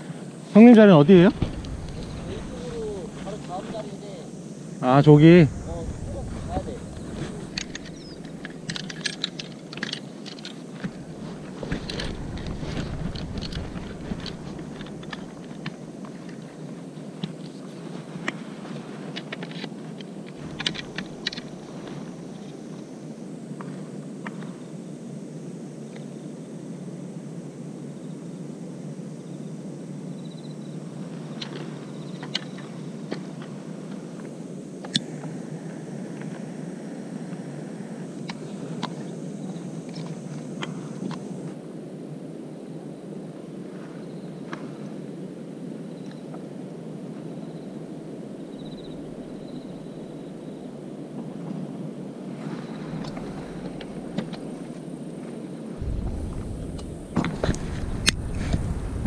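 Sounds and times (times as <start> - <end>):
steady background rush: 0.0 - 15.9, 55.8 - 59.0
fishing tackle clicks and rattles: 7.5 - 10.6.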